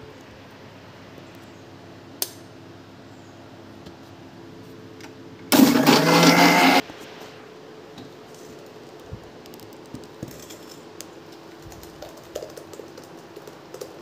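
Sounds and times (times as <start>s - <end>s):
mixer grinder running: 5.5s - 6.8s.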